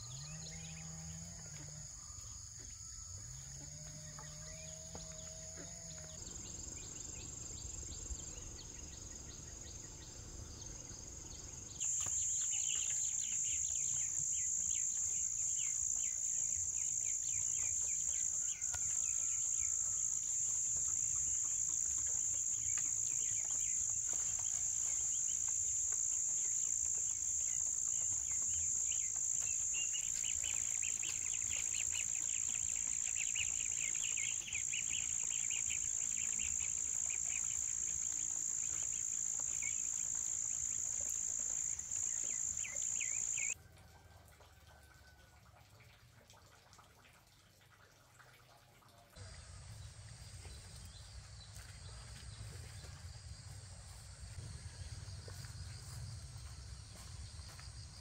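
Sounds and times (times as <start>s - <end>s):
high-pitched insect chorus: 6.3s - 43.6s, 49.2s - 58.0s.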